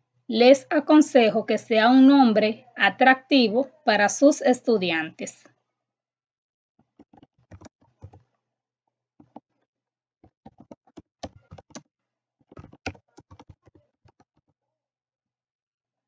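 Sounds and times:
typing on computer keyboard: 7.0 - 8.2, 10.2 - 11.9, 12.5 - 14.4.

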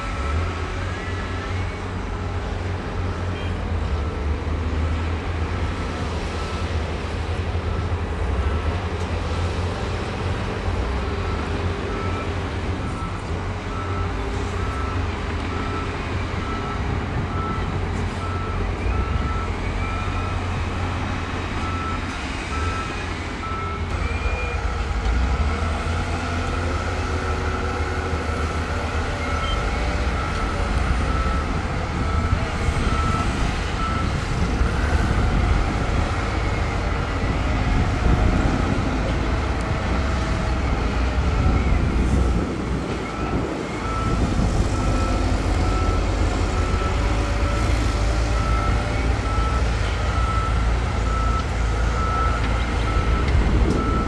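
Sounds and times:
diesel machinery rumbling: 0.0 - 54.0
reversing alarm beeping: 11.1 - 20.9, 21.6 - 39.2, 42.9 - 54.0.

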